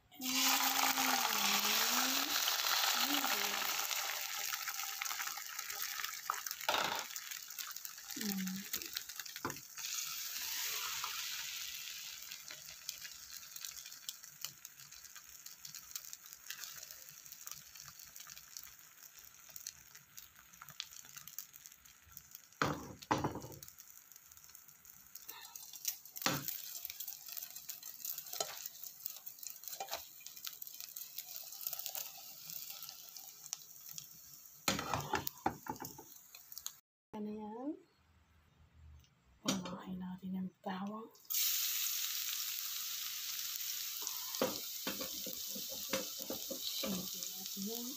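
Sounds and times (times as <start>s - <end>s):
egg sizzling in hot oil: 0.0s - 36.8s, 41.2s - 47.9s
sharp knocks in pan: 22.6s - 23.6s, 34.7s - 36.0s.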